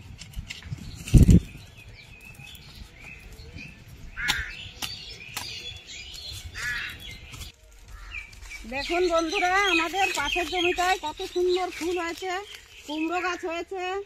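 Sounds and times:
birds chirping: 0.5 - 14.0
crow cawing: 4.2 - 4.6, 6.6 - 7.0.

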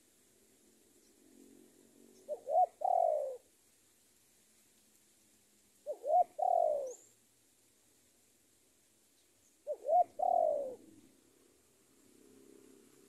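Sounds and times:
dove cooing: 1.5 - 3.5, 5.8 - 7.1, 9.6 - 11.1.

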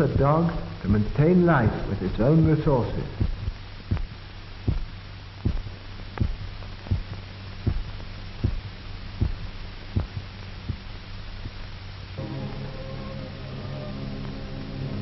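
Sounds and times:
heartbeat thumping: 0.0 - 0.6, 3.2 - 11.7
constant low hum: 0.0 - 15.0.

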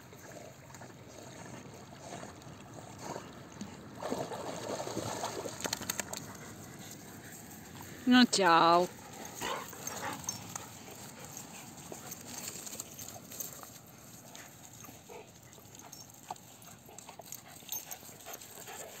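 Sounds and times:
dogs scuffling on grass: 8.8 - 19.0.

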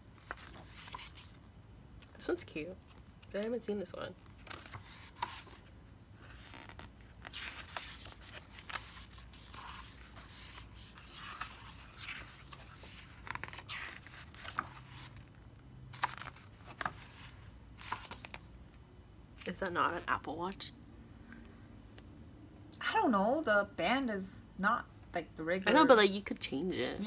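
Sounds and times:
book pages turning: 0.2 - 1.4, 4.2 - 18.5
paper swishes and scrapes: 4.5 - 5.7, 6.3 - 15.2.

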